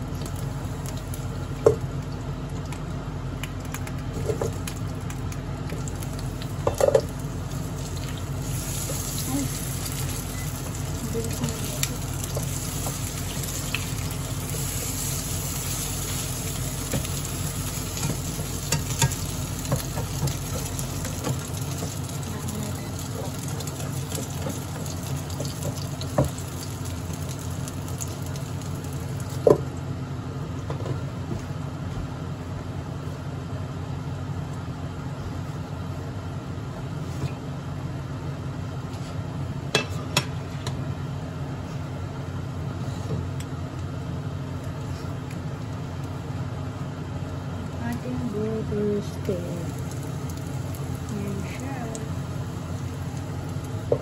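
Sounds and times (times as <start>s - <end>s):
patties sizzling in pan: 0.0s - 2.4s, 5.8s - 29.5s, 49.2s - 54.0s.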